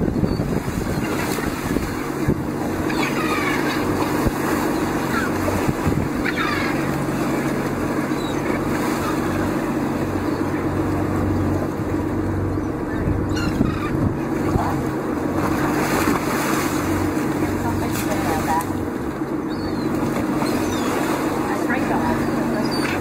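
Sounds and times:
motorboat engine running: 0.0s - 23.0s
water splashing along hull: 0.0s - 23.0s.

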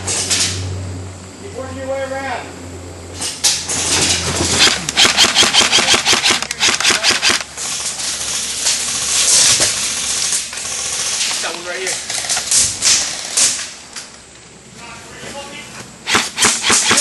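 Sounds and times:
airsoft rifle firing: 4.5s - 13.6s, 16.0s - 17.0s.

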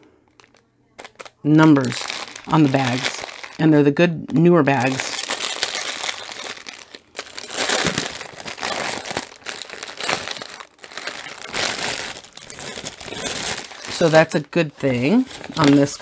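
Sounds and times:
plastic bags crinkling: 0.3s - 16.0s.

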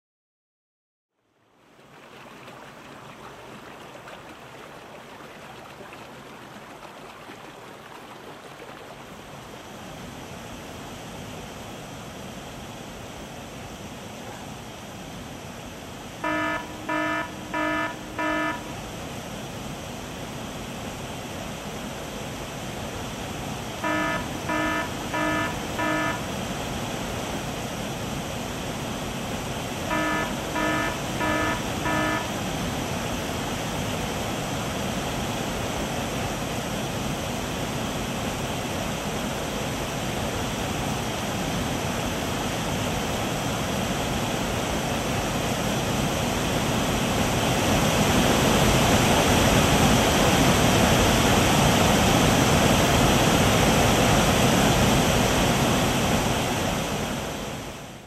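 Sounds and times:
alarm beeping: 16.2s - 18.8s, 23.8s - 26.4s, 29.9s - 32.4s
heavy rain: 21.8s - 57.5s.

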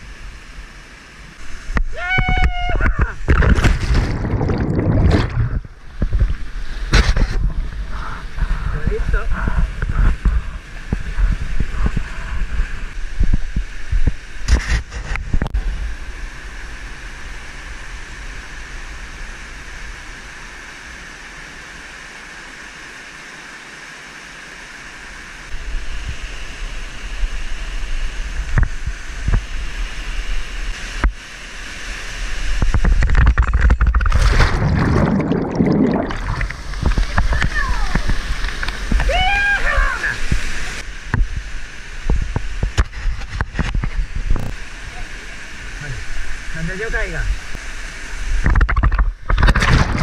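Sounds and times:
waterfall and stream rushing: 15.9s - 33.1s, 34.0s - 48.5s.

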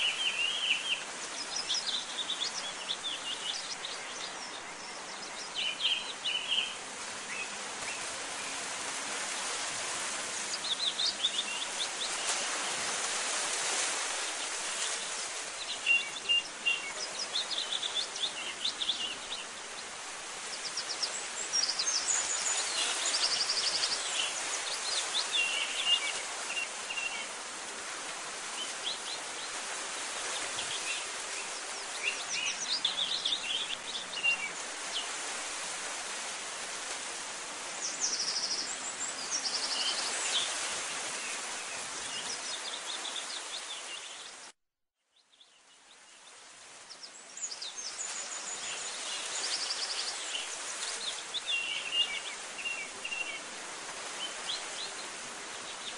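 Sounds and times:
birds chirping and trilling: 0.0s - 8.6s
steady outdoor hiss: 0.0s - 55.9s.

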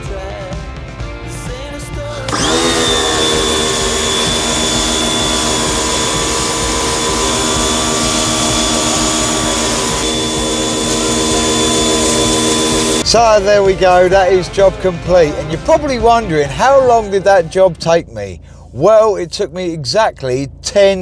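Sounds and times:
power tool motor whining: 2.3s - 13.0s.

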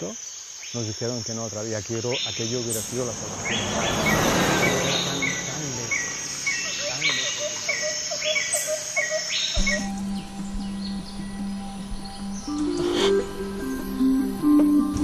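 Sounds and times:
insects chirring: 0.0s - 14.8s
music: 9.6s - 15.0s.

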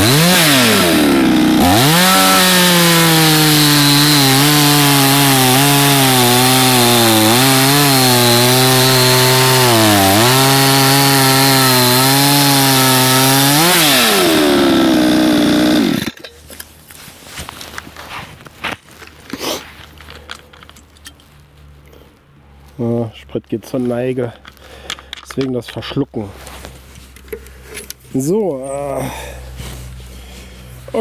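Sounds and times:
chainsaw cutting wood: 0.0s - 16.3s
faint clicks and handling noises: 16.2s - 22.3s, 23.4s - 25.8s.

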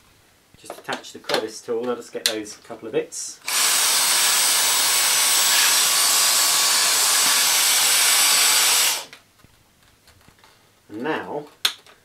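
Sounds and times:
vacuum cleaner suction hiss: 3.4s - 9.1s.

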